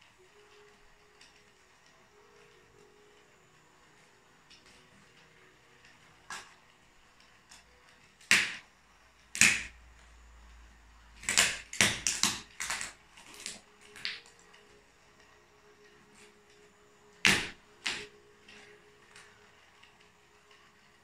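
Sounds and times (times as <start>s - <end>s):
plastic toy cracking and snapping: 9.3s - 9.8s, 11.2s - 14.5s.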